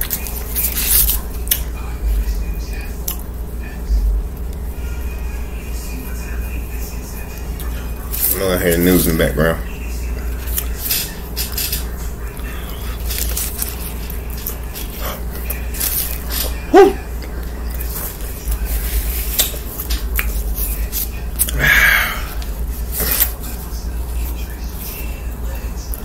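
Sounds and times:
chewing and lip-smacking: 0:00.0 - 0:01.7, 0:02.8 - 0:03.3, 0:10.1 - 0:21.6
steady low hum: 0:00.0 - 0:26.0.

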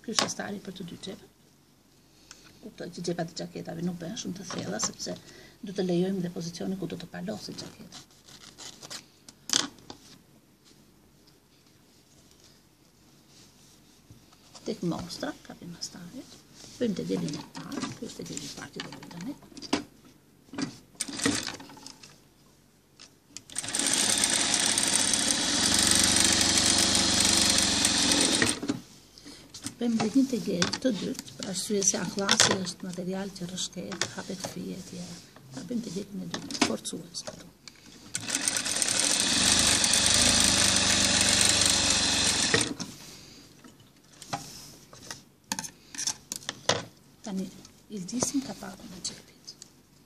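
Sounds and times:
sewing machine stitching: 0:21.0 - 0:21.7, 0:23.5 - 0:28.6, 0:38.2 - 0:42.8.

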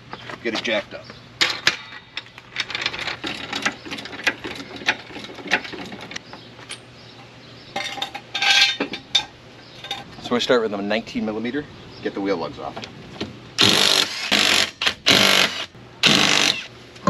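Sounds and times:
metal rattle: 0:01.4 - 0:06.9.

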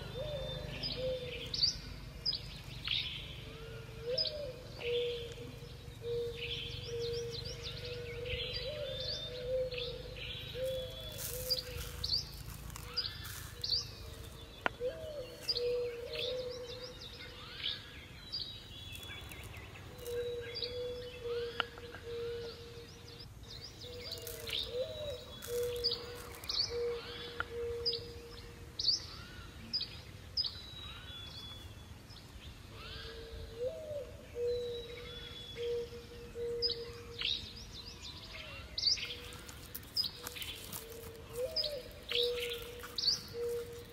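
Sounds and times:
birds chirping: 0:00.0 - 0:43.9.

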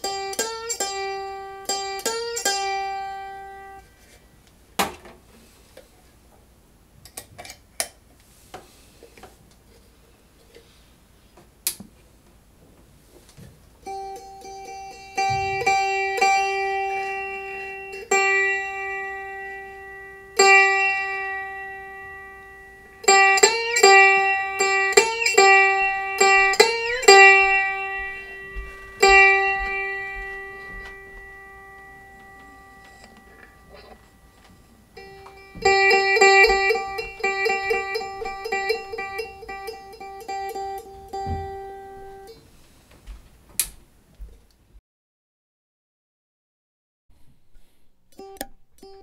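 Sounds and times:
single string plucked: 0:00.0 - 0:03.8, 0:13.8 - 0:34.4, 0:35.0 - 0:42.4.

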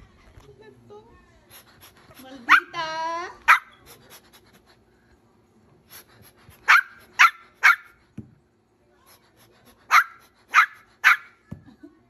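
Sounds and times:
puppy yapping: 0:06.7 - 0:08.0, 0:09.9 - 0:11.4.

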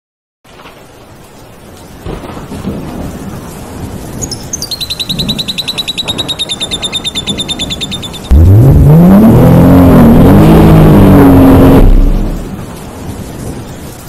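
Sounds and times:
rain: 0:00.4 - 0:14.0
thunder rumbling: 0:01.9 - 0:14.0
rapid high chirping: 0:04.2 - 0:08.4.

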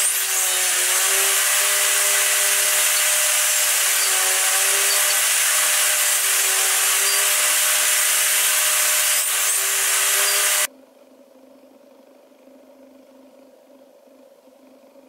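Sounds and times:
table saw cutting wood: 0:00.0 - 0:10.7
faint hum: 0:10.7 - 0:15.0.

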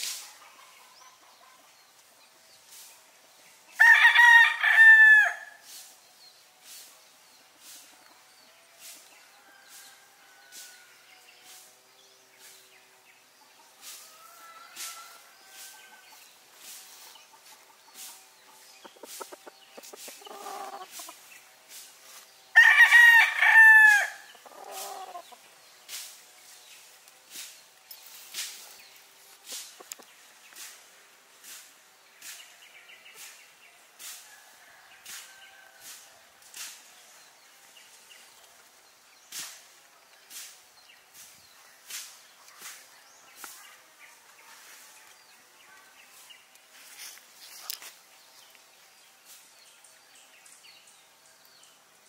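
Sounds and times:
rooster crowing: 0:03.8 - 0:05.6, 0:22.6 - 0:25.2.

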